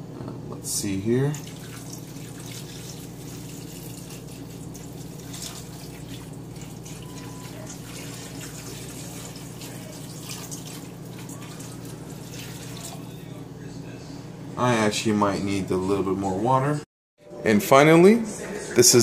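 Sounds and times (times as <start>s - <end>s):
water pouring into a dish: 1.3s - 13.2s.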